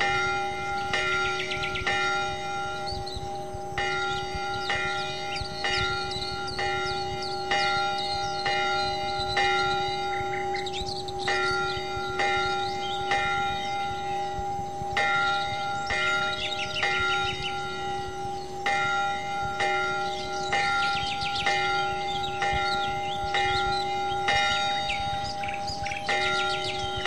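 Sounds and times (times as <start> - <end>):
bells ringing: 0.0 - 27.0
birds chirping: 0.0 - 27.0.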